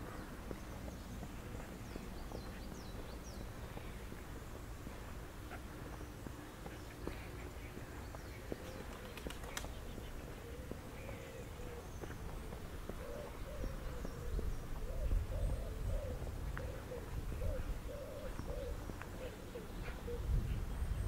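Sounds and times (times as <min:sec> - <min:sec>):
pigeon cooing: 0:08.5 - 0:20.4.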